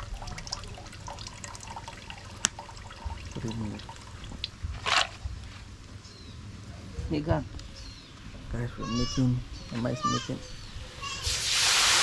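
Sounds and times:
juice draining into pot: 0.0s - 4.6s.

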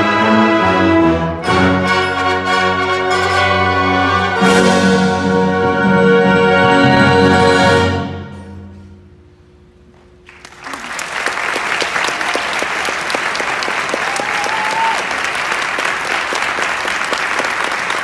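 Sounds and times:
audience applause: 10.3s - 18.0s.

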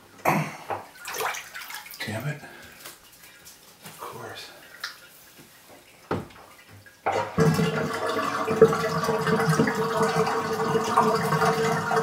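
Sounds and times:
bathtub draining with gurgling: 0.0s - 12.0s
splash in bath water: 1.0s - 3.8s.

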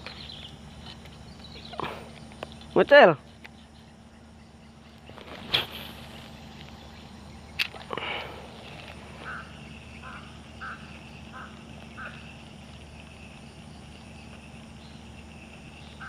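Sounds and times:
high-pitched frog chorus: 0.0s - 16.0s
frog croaking: 6.0s - 16.0s.

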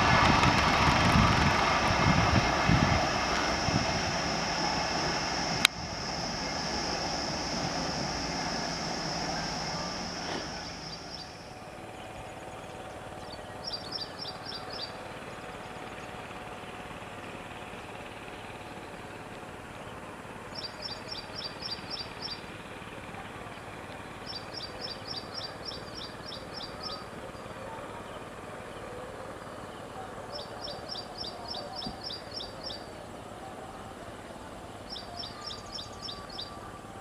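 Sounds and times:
bird chirping: 6.4s - 12.1s, 12.8s - 15.0s, 20.5s - 22.4s, 30.4s - 32.9s, 34.8s - 36.7s.

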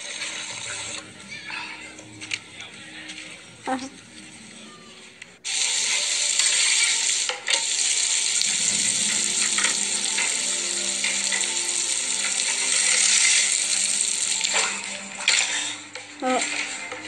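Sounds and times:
bread sizzling in frying pan: 0.0s - 1.1s, 5.5s - 17.0s.

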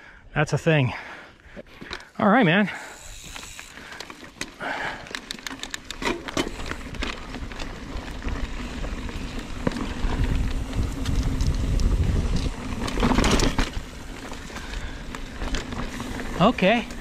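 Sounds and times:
wind on microphone: 9.9s - 12.9s.

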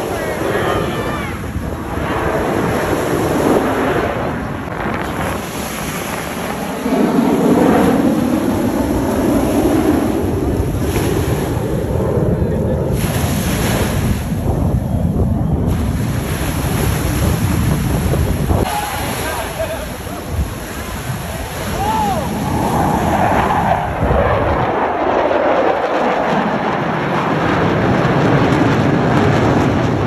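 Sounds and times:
waves washing: 0.0s - 24.0s
deep steady rumble: 0.0s - 30.0s
wind buffeting microphone: 0.0s - 30.0s.

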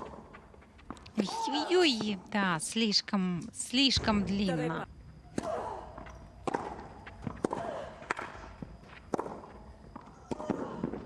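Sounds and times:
racket hitting tennis ball: 6.4s - 8.4s, 9.1s - 9.5s.

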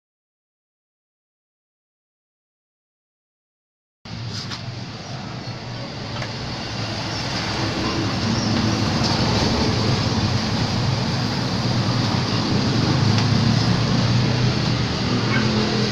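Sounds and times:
vehicle engine rumble: 4.1s - 15.9s.

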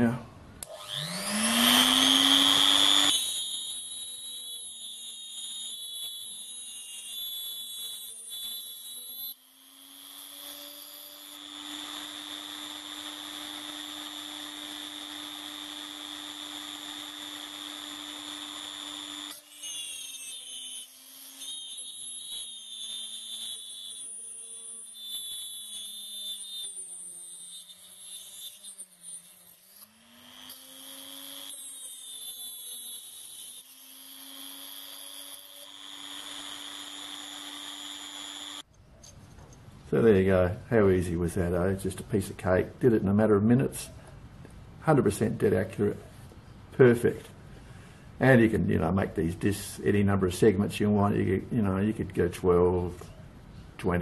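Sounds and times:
rotary tool whining: 0.6s - 40.0s.

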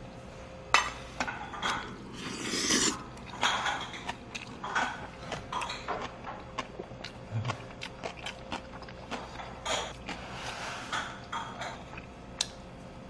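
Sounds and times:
chewing and mouth noises: 2.2s - 10.6s, 11.2s - 12.6s.

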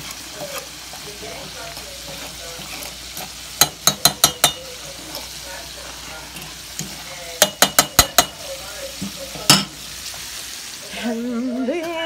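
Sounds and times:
spoon stirring a pot: 0.0s - 10.4s
pot bubbling and hissing: 0.0s - 12.0s
spoon clinking against pot: 3.5s - 4.9s, 6.4s - 8.4s.

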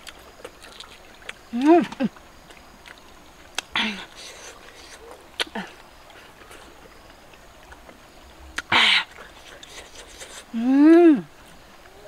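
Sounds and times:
breathy mouth noises: 3.6s - 6.8s, 8.6s - 10.6s
woman's short vocal sound: 10.6s - 11.3s.

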